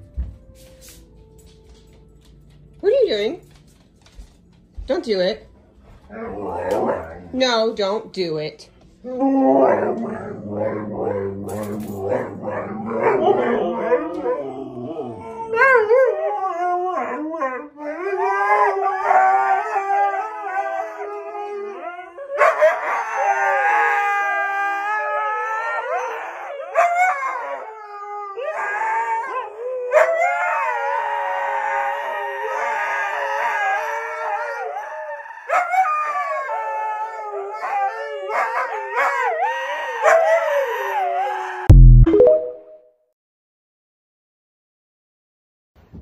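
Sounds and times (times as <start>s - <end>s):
huskies howling: 6.1s - 7.4s, 9.0s - 41.7s.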